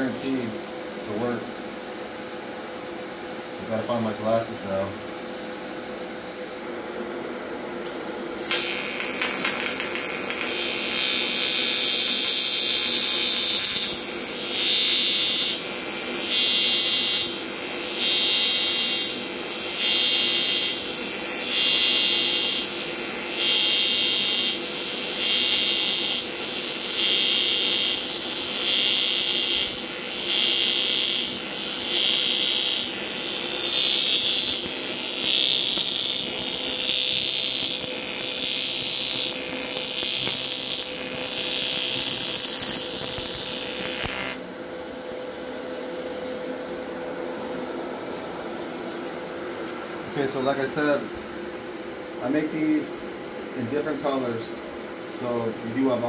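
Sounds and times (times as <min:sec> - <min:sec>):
welding arc buzzing and hissing: 0:07.8 - 0:44.5.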